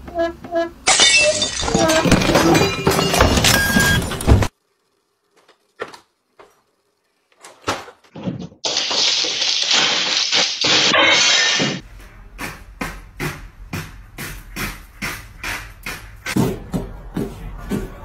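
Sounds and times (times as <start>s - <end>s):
objects clattering and crashing: 0.9s - 4.5s, 8.0s - 11.8s
television crashing to the floor: 0.9s - 4.5s, 7.6s - 11.8s.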